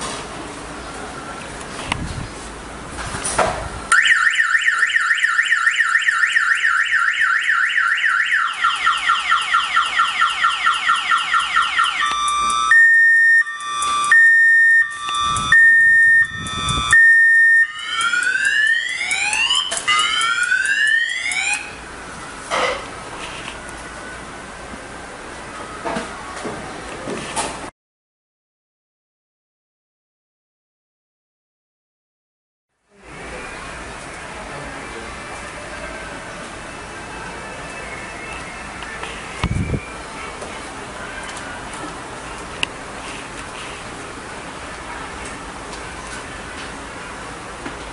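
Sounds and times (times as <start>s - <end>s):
electronic alarm siren: 3.9s - 21.8s.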